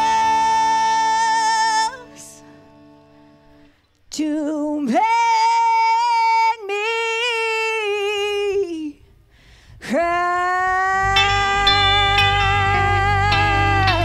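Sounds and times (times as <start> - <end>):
woman singing: 0.0 - 2.5, 4.1 - 9.1, 9.8 - 14.0.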